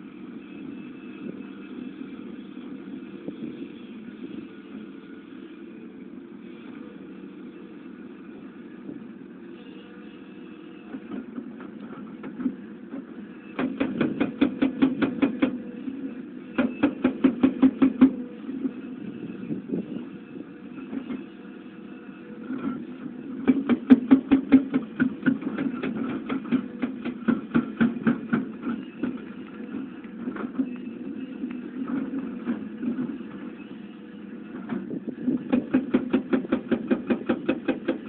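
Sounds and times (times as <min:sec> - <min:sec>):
diesel engine running under load: 0:00.0 - 0:38.0
hydraulic breaker hammering rock: 0:13.4 - 0:15.8, 0:16.5 - 0:18.8, 0:22.5 - 0:33.6, 0:34.6 - 0:38.0.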